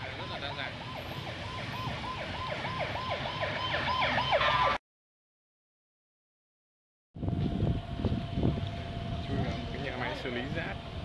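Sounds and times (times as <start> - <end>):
siren sweeping downward: 0.0 - 4.8, 7.2 - 11.0
street traffic rumble: 0.0 - 4.8, 7.2 - 11.0.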